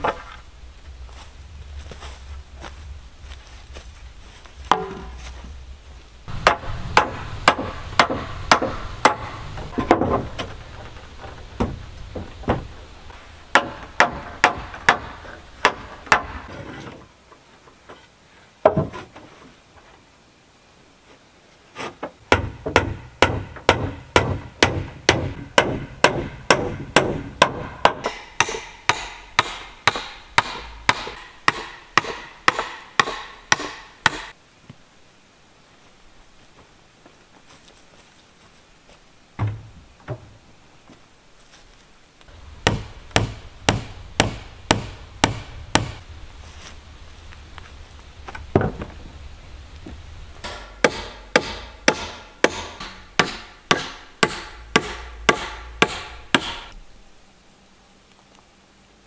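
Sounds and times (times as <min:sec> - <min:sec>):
hammer striking wood: 0:04.7 - 0:05.2, 0:06.3 - 0:10.5, 0:13.5 - 0:16.5, 0:22.3 - 0:34.4, 0:42.6 - 0:46.0, 0:50.4 - 0:56.8.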